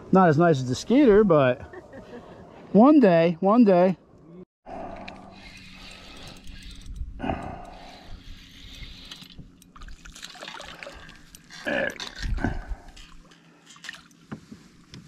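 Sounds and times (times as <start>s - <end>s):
water splashing and sloshing: 7.9s - 15.0s.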